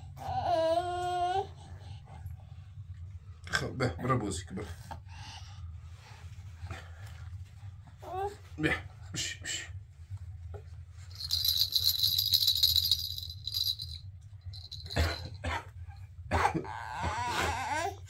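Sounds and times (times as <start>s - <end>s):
steady low hum: 1.4s - 17.1s
plastic toy rattle shaken: 11.1s - 15.4s.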